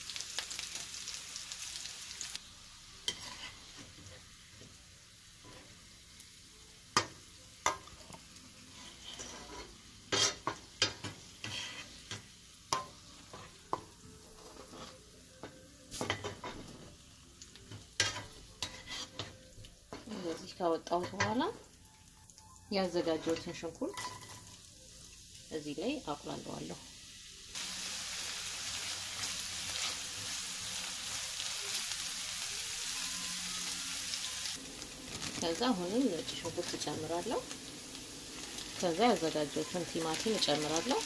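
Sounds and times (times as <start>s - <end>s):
carrots sizzling in oil: 0.0s - 41.0s
spatula scraping pan: 3.0s - 4.3s, 8.7s - 15.1s, 18.0s - 21.4s.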